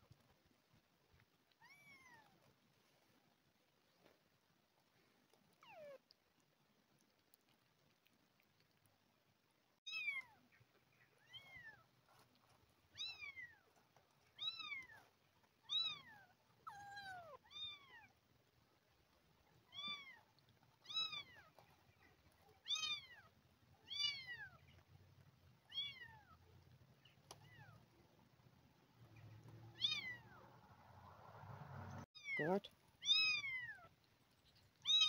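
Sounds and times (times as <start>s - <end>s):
kitten meowing: 29.7s - 30.4s, 32.2s - 33.9s.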